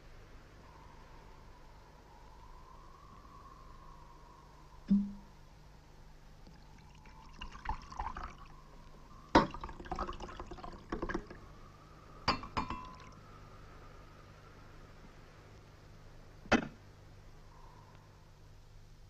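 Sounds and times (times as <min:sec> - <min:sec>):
steady low hum: 0:00.0 - 0:19.0
drink being poured: 0:06.5 - 0:08.5, 0:09.4 - 0:11.4, 0:12.3 - 0:13.2
glass bottles and cups clinking: 0:09.4 - 0:11.3, 0:12.3 - 0:13.1.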